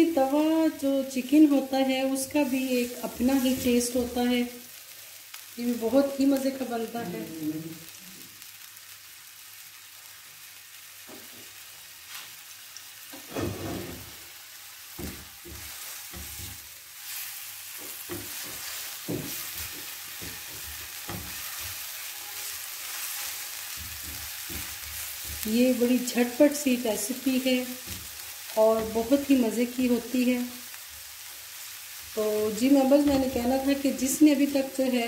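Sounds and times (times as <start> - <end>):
paste sizzling in hot oil: 0.1 - 35.0
spatula scraping a pan: 13.2 - 14.2, 15.0 - 26.5.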